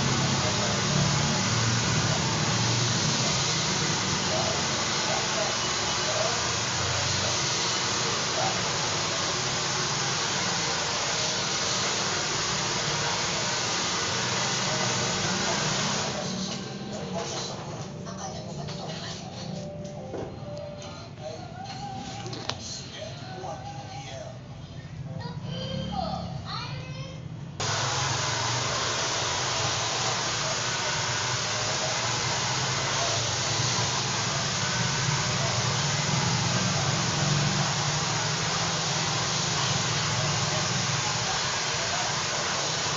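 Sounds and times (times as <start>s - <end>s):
hair dryer running: 0.0s - 17.7s, 27.6s - 42.9s.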